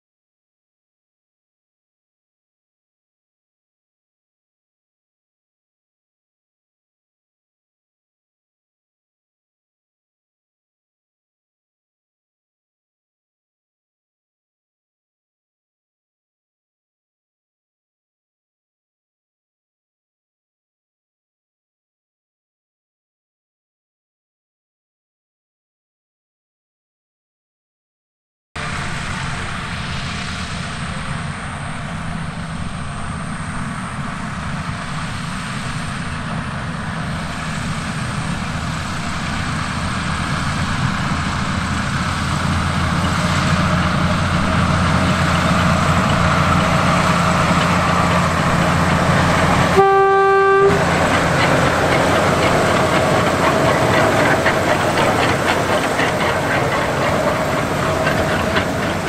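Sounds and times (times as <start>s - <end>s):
diesel locomotive engine running: 28.6s - 59.0s
locomotive horn toot: 49.6s - 51.0s.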